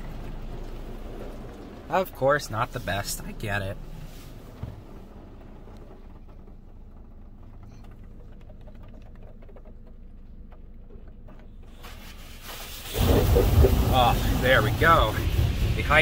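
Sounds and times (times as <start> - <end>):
car wash machine hum: 0.0 - 16.0
spray hiss: 11.7 - 16.0.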